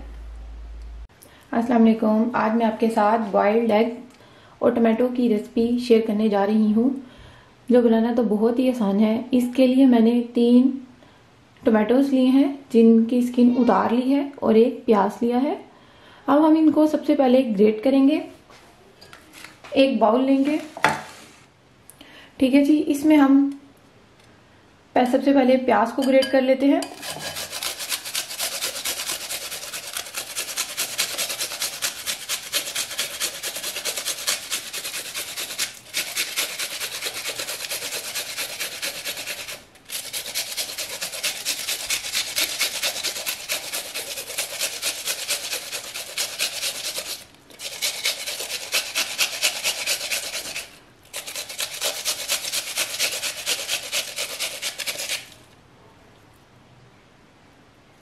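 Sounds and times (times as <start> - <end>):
onion scraping on metal grater: 26.8 - 55.4.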